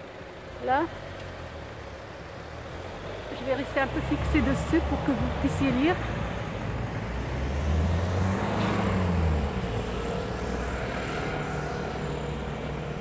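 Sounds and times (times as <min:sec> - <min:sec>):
city traffic hum: 0:00.0 - 0:13.0
vehicle engine passing by: 0:02.7 - 0:13.0.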